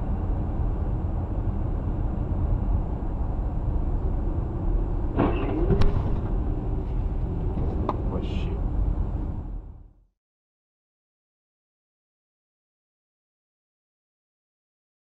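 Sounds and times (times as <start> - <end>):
car road and engine noise: 0.0 - 10.1.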